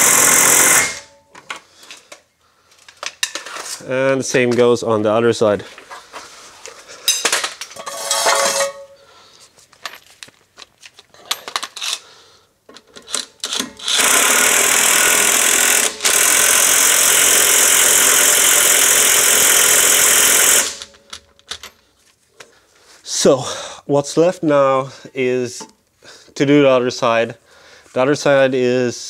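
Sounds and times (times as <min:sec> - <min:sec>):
impact wrench running: 0:00.0 - 0:01.1, 0:13.4 - 0:21.1
metal tools clanking: 0:07.0 - 0:09.0.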